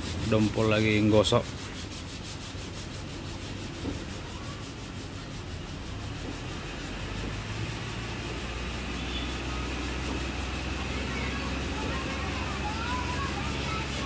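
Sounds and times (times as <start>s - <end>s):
hand sanding rubbing: 0.0s - 14.0s
low vehicle rumble: 4.1s - 14.0s.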